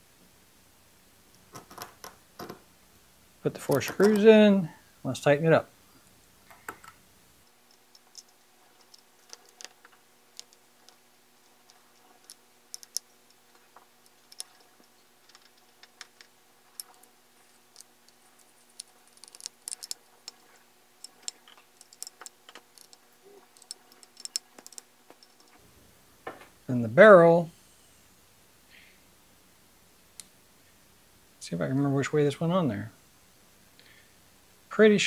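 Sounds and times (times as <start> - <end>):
small metal parts tapping: 3.6 - 4.3, 6.5 - 25.6
screwdriver clicks: 17.7 - 20.4.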